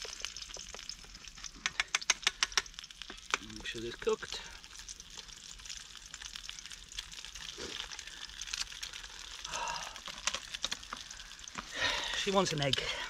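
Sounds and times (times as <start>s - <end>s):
egg sizzling in a pan: 0.0s - 13.0s.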